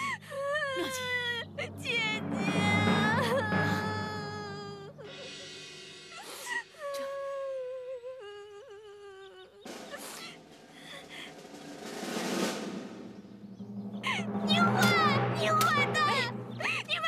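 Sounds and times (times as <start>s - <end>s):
person wailing and sobbing: 6.5s - 11.3s.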